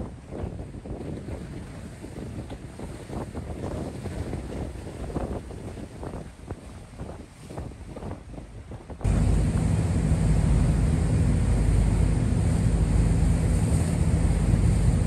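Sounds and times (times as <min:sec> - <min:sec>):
wind buffeting microphone: 0:00.0 - 0:15.0
ferry engine drone: 0:09.0 - 0:15.0
water rushing past: 0:09.0 - 0:15.0.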